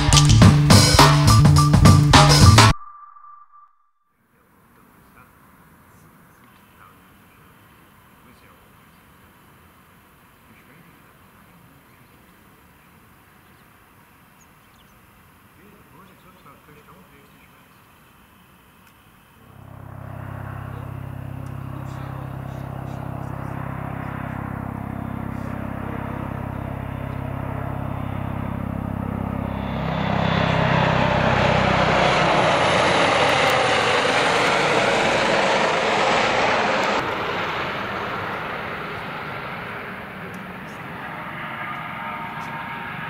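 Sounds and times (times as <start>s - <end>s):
helicopter rotor hum: 19.4s - 43.0s
helicopter turbine whine: 19.4s - 43.0s.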